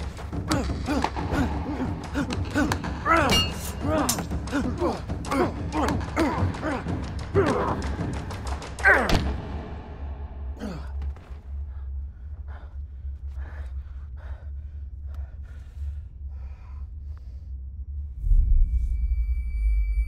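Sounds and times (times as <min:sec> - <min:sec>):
steady low hum: 0:10.0 - 0:20.0
man breathing hard: 0:10.6 - 0:18.2.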